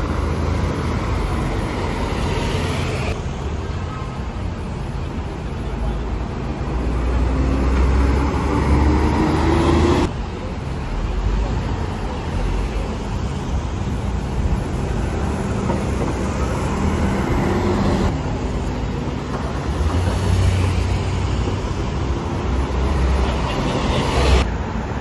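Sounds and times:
bus engines running: 0.0s - 25.0s
city traffic rumble: 0.0s - 25.0s
bus accelerating whine: 4.8s - 10.2s, 11.5s - 25.0s.

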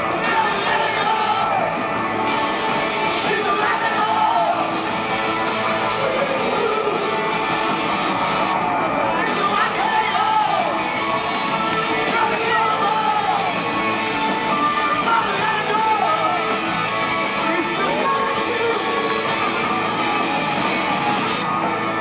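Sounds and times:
live rock band playing: 0.0s - 22.0s
person singing: 3.0s - 4.8s, 5.8s - 7.5s, 9.1s - 10.9s, 11.6s - 13.6s, 14.6s - 16.6s, 17.4s - 19.4s.

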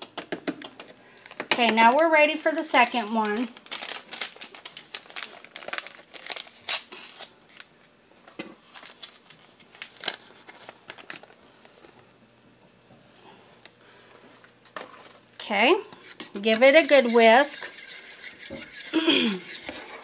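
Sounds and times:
paper packet crinkling and tearing: 2.8s - 7.7s, 8.7s - 11.4s.

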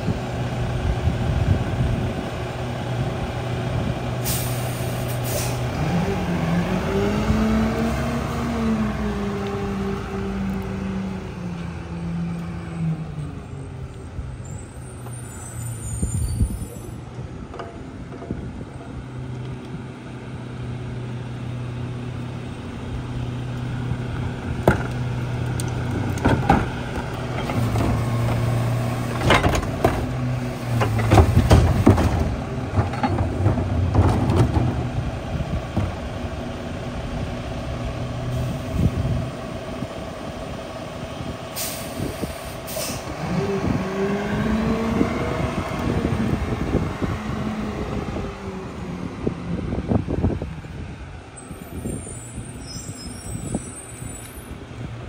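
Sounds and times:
air brake hisses: 4.2s - 5.6s, 41.6s - 43.1s
metal clanks and bangs: 29.1s - 30.1s.

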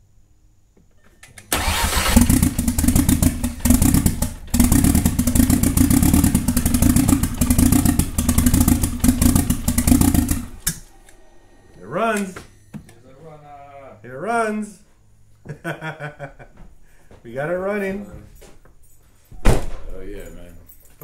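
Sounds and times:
car engine starting and running rough: 1.5s - 10.9s.

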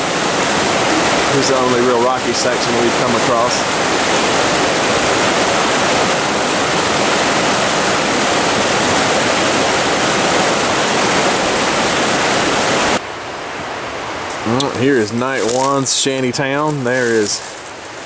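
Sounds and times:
water rushing over rocks: 0.0s - 13.0s.

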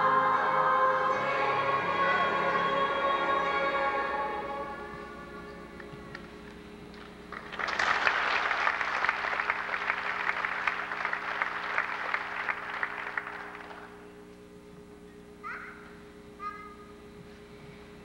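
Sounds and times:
steady low hum: 0.0s - 18.0s
audience applauding: 7.0s - 14.0s.

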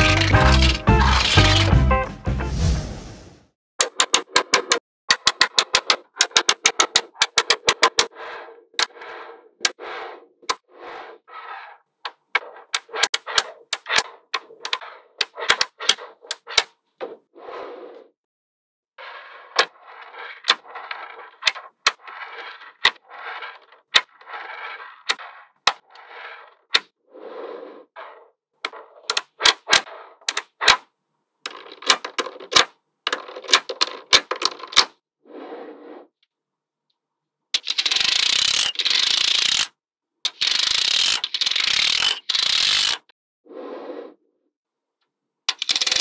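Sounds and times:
balls rattling: 0.0s - 1.8s, 31.5s - 34.9s.

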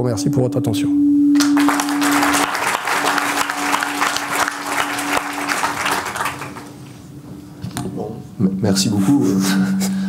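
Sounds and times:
audience applauding: 1.4s - 6.8s.

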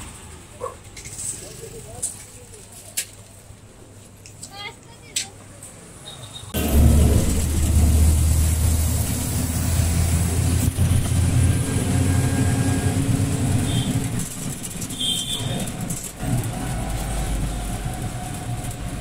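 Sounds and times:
rickshaw engine humming: 0.0s - 19.0s
road noise: 0.0s - 19.0s.

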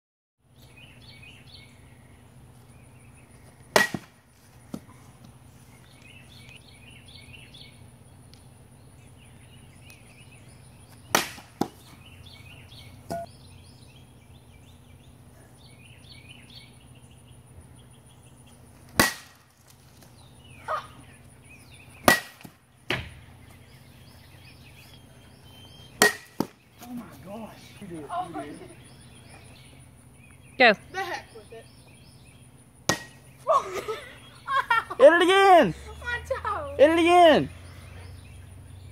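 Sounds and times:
bat hitting glass bottle: 3.8s - 4.1s, 13.1s - 13.3s, 19.0s - 19.4s, 22.1s - 22.5s, 26.0s - 26.5s, 32.9s - 33.2s.

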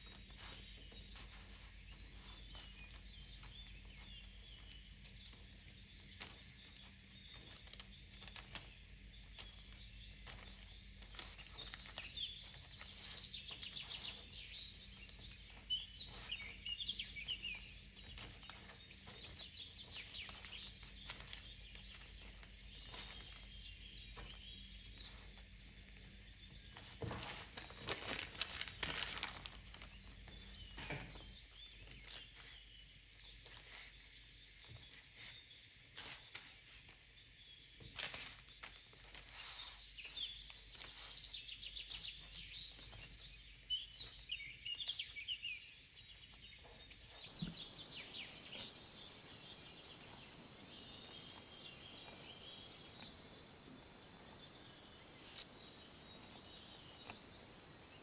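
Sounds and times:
steady low hum: 47.1s - 58.0s.

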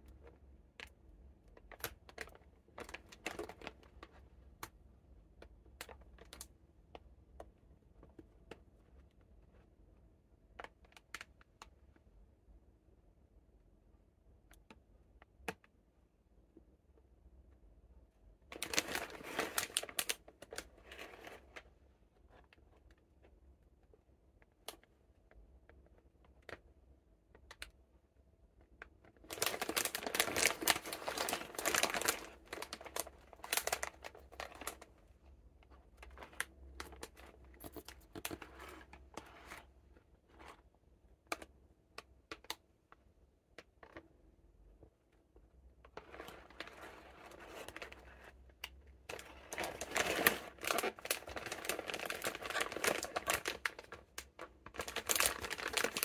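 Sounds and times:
plastic wrapper crinkling: 1.6s - 4.2s, 18.5s - 21.6s, 29.1s - 35.0s, 35.6s - 39.7s, 49.1s - 56.0s.

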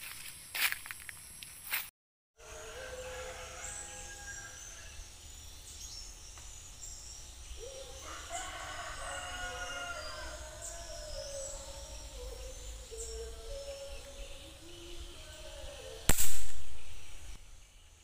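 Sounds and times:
rooster crowing: 2.4s - 5.0s, 7.6s - 11.8s
small birds chirping: 4.5s - 18.0s.

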